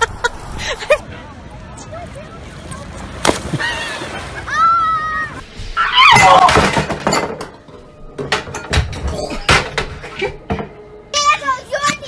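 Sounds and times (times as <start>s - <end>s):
sharp knocks and clattering bangs: 6.2s - 10.8s.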